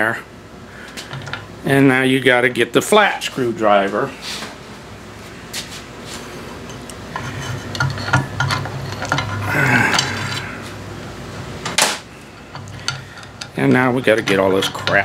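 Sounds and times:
screwdriver clinking and scraping metal: 6.7s - 10.4s, 12.4s - 15.0s.

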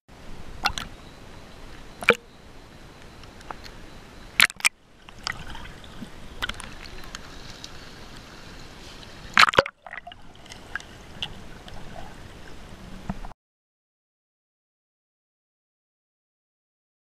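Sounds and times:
water sloshing and gurgling: 0.4s - 1.0s, 1.6s - 2.4s, 3.3s - 13.3s.

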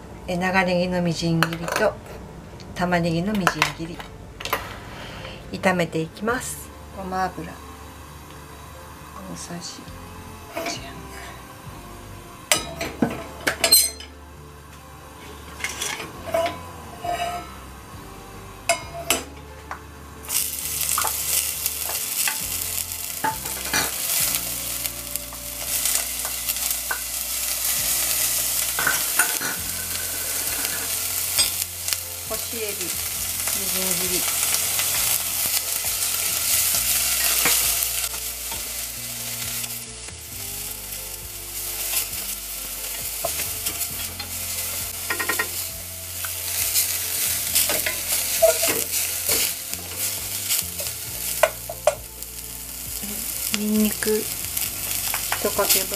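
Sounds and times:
onions sizzling in oil: 3.2s - 55.9s
pan clinking: 12.5s - 14.2s, 18.7s - 19.3s, 28.6s - 31.7s, 47.5s - 50.2s
wooden spatula scraping pan: 15.2s - 17.7s.

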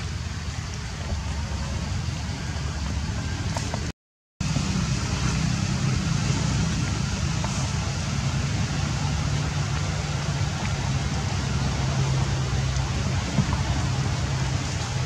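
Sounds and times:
low outdoor rumble: 0.0s - 15.0s
hiss: 4.4s - 15.0s.

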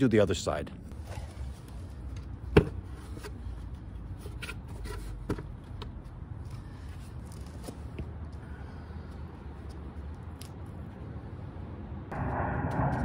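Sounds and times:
low steady rumble: 11.8s - 13.0s.

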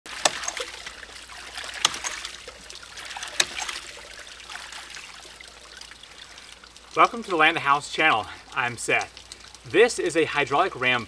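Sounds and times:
water spilling and splashing: 0.0s - 11.0s.

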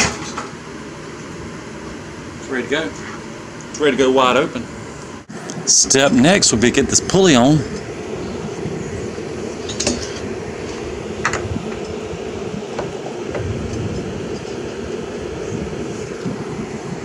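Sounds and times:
wind buffeting microphone: 4.6s - 17.0s.

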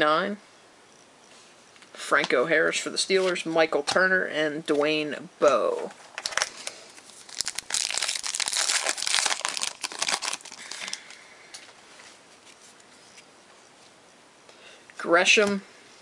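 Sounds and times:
wrapper crinkling torn open: 6.1s - 11.2s.

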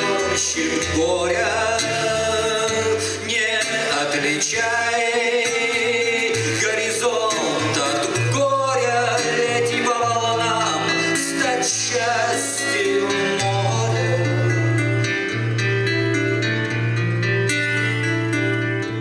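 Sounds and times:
man singing: 0.0s - 15.1s
classical guitar: 0.0s - 19.0s.

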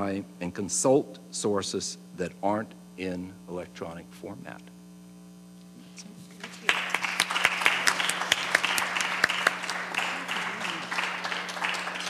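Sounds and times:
electrical hum: 0.0s - 12.0s
audience applause: 6.4s - 12.0s.

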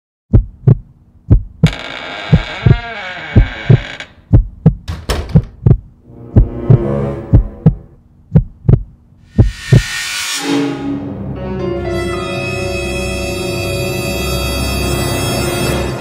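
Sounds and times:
heartbeat thumps: 0.3s - 1.7s, 2.3s - 2.8s, 3.4s - 9.9s
low droning hum: 5.6s - 9.8s
dramatic music: 6.0s - 8.0s, 9.3s - 16.0s
rising whoosh: 6.0s - 8.0s.

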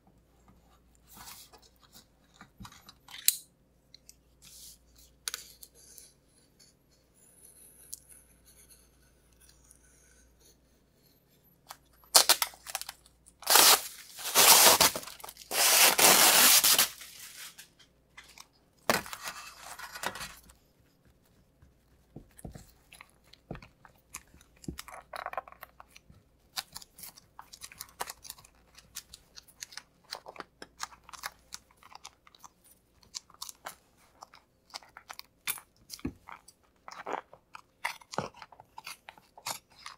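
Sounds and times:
cloth tearing and peeling: 13.4s - 17.5s.

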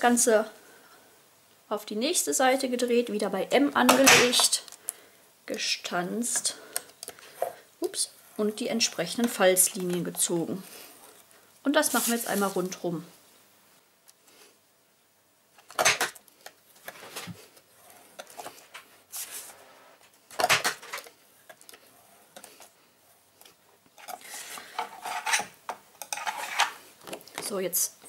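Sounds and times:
card sheet sliding and rustling: 11.8s - 12.8s, 19.1s - 20.0s
bone folder scraping: 24.0s - 25.5s, 26.2s - 27.2s.

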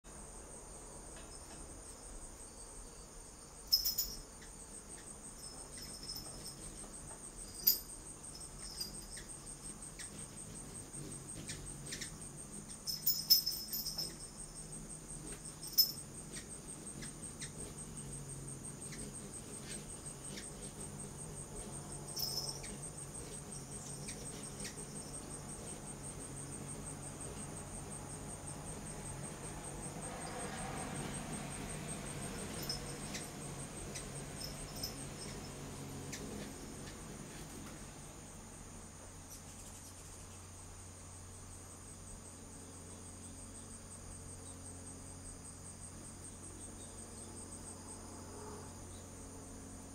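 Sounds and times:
hummingbird wings humming: 0.4s - 49.9s
insects trilling: 0.4s - 49.9s
hummingbird chip calls: 3.7s - 30.0s, 31.0s - 37.4s.

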